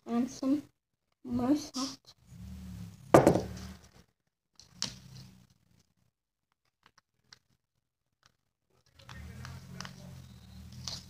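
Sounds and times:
plastic cup knocking on tabletop: 0:03.2 - 0:03.5.

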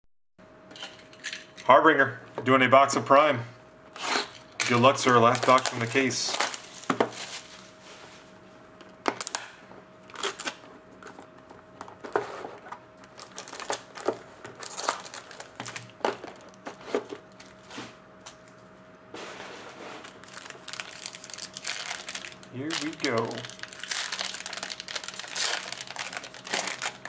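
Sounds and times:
foil pack crinkling: 0:04.0 - 0:07.8, 0:09.1 - 0:11.2, 0:13.0 - 0:17.7, 0:20.0 - 0:27.0.

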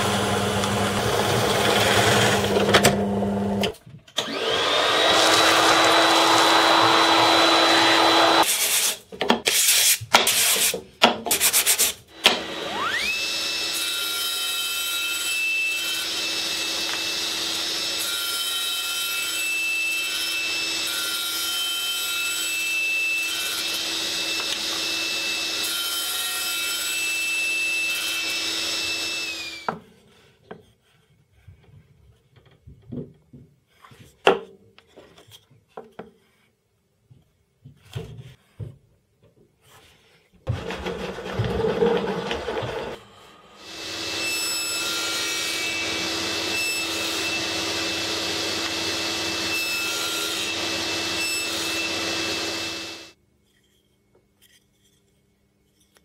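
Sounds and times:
table saw running: 0:00.0 - 0:08.5, 0:12.1 - 0:29.7, 0:40.5 - 0:53.2.

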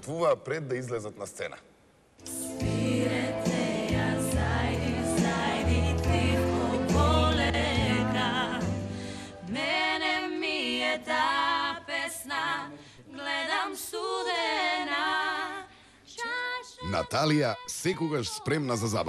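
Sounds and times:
low instrumental backing: 0:02.2 - 0:09.8
voices singing with heavy vibrato: 0:02.2 - 0:17.9.

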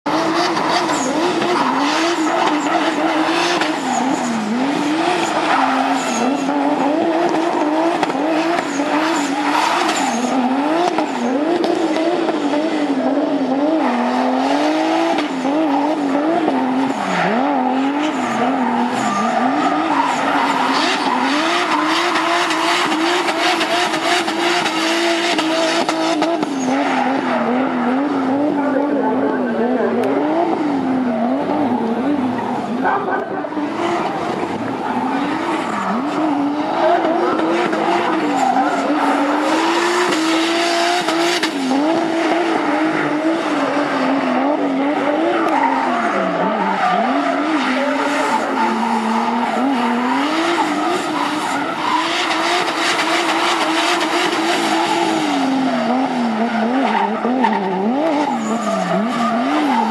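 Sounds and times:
car engine revving: 0:00.0 - 0:59.9
tyres squealing and skidding: 0:00.0 - 0:59.9.

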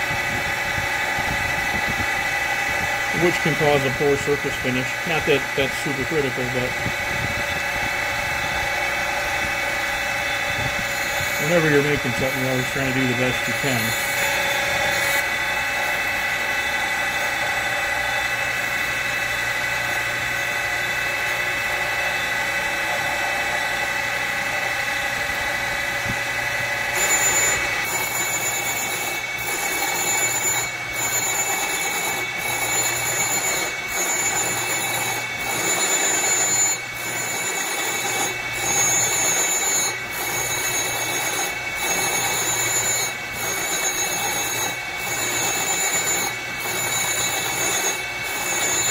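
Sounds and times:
surface grinder grinding metal: 0:02.8 - 0:07.6, 0:08.2 - 0:20.0, 0:26.9 - 0:48.9.

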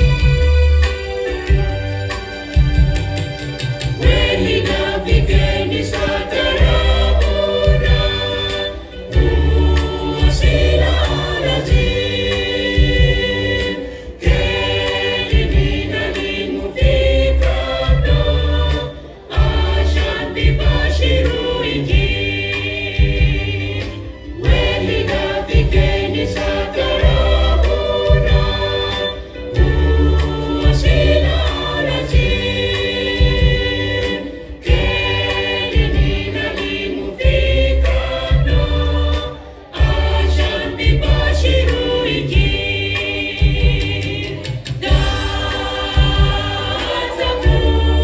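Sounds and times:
deep bass line: 0:00.0 - 0:36.6
choir singing gospel in harmony: 0:00.0 - 0:48.0.

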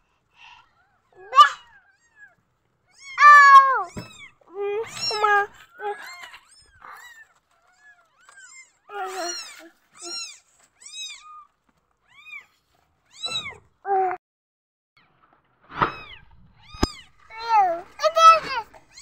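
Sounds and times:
kittens mewing: 0:00.7 - 0:14.2, 0:15.8 - 0:19.0.

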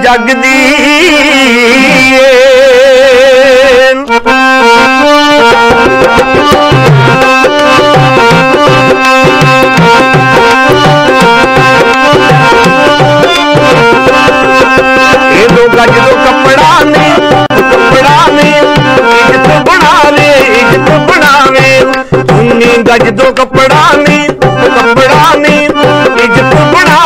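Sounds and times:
person singing: 0:00.0 - 0:04.8, 0:05.4 - 0:27.0
harmonium melody: 0:00.0 - 0:27.0
hand drum beat: 0:05.4 - 0:27.0.

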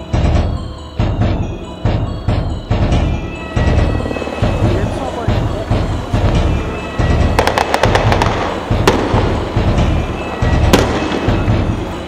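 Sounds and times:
music with pulsing bass beat: 0:00.0 - 0:12.0
sharp cracks: 0:07.4 - 0:09.4.

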